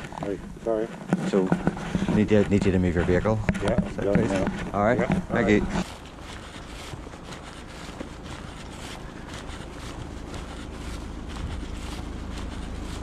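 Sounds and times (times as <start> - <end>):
footsteps on tarmac: 0.0 - 13.0
wind noise on microphone: 9.6 - 13.0.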